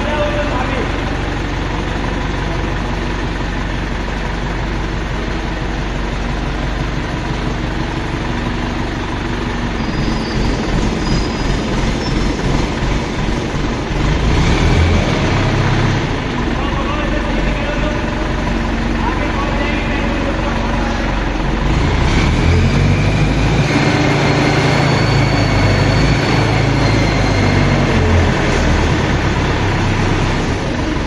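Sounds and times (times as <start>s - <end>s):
crane engine running: 0.0s - 31.0s.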